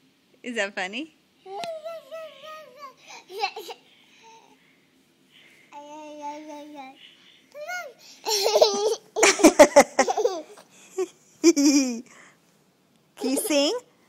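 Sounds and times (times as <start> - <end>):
baby laughing: 1.5 - 3.9, 7.6 - 12.0
baby babbling: 1.5 - 4.5, 5.7 - 7.0, 7.6 - 8.9.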